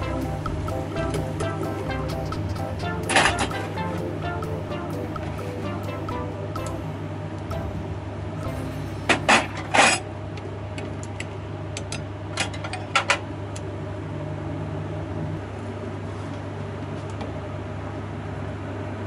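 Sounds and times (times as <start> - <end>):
steady low electric hum: 0.0 - 19.0.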